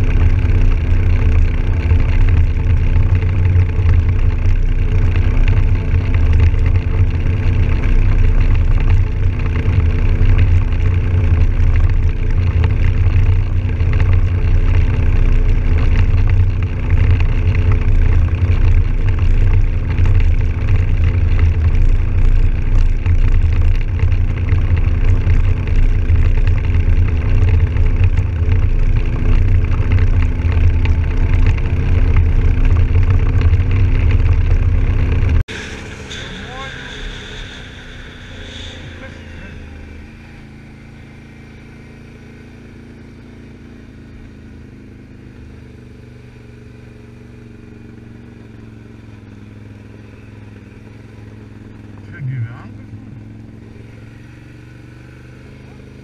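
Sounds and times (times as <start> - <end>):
engine running at cruise: 0.0 - 56.0
wind and road rumble: 0.0 - 56.0.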